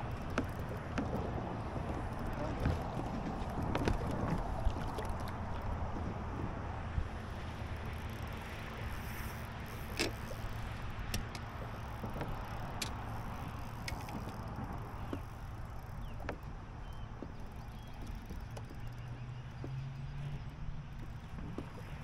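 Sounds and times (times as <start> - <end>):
boat engine hum: 0.0 - 22.0
sharp clicks and knocks: 11.1 - 13.0.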